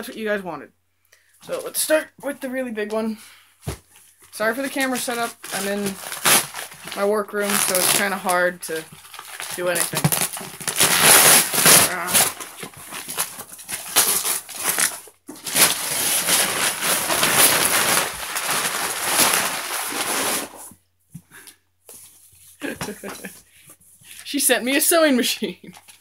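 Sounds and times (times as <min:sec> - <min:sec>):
cardboard box tearing: 0:05.0 - 0:20.7.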